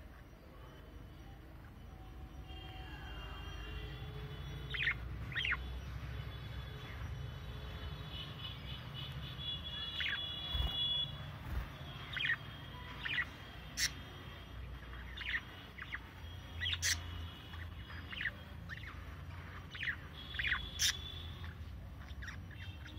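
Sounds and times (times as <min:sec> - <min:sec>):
budgerigars chirping: 0:03.5 - 0:06.2, 0:08.0 - 0:22.9.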